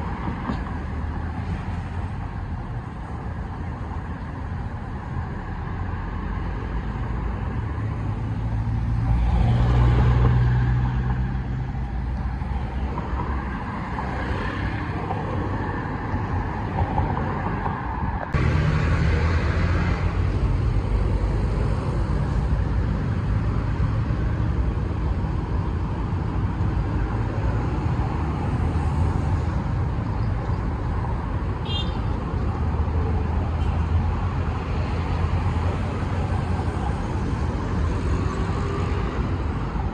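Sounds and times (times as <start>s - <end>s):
steady road traffic: 0.0s - 39.9s
vehicle passing close: 18.4s - 24.6s.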